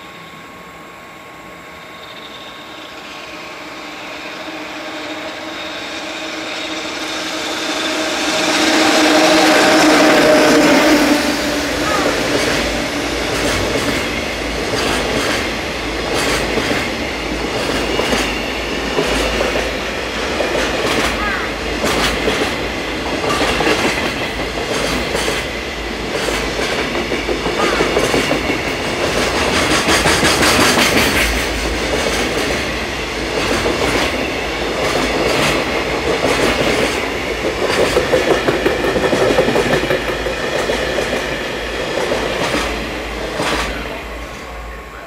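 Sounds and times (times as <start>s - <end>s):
train wheels clattering over rail joints: 12.2s - 19.7s, 20.4s - 43.8s.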